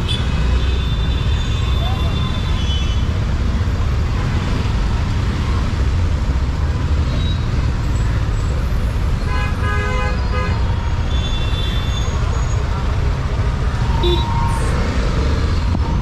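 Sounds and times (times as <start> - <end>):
street traffic: 0.0 - 16.0
vehicle horn honking: 14.0 - 14.6.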